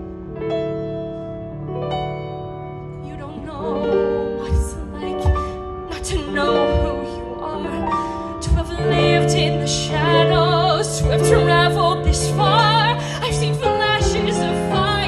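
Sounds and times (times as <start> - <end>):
woman singing ballad: 3.0 - 15.0.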